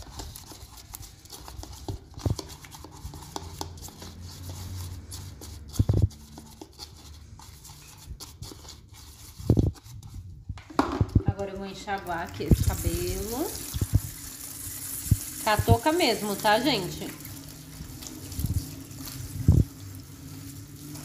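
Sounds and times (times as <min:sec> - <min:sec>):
brush scraping plastic bowl: 0:00.0 - 0:21.0
brush knocking on bowl: 0:10.6 - 0:11.5.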